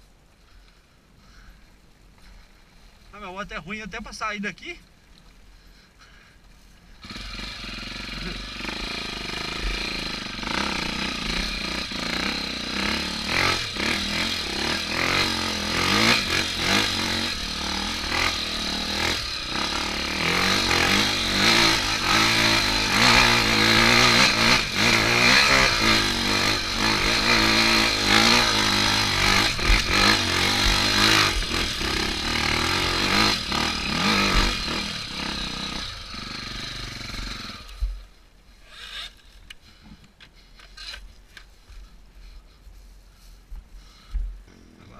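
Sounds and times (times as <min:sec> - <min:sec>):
motorcycle engine revving: 0:07.0 - 0:39.9.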